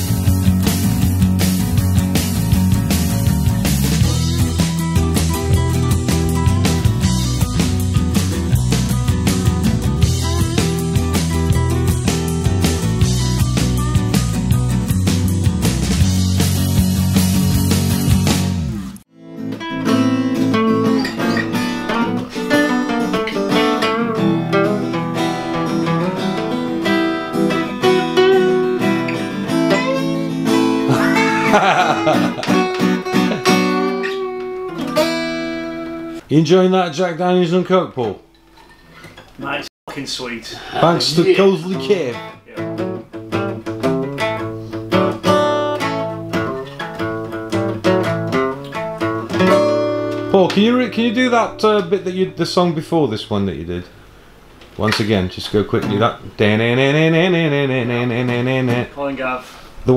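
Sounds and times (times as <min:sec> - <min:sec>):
acoustic guitar playing: 0:00.0 - 0:36.4, 0:37.5 - 0:39.6, 0:40.8 - 0:53.0, 0:56.0 - 0:59.4.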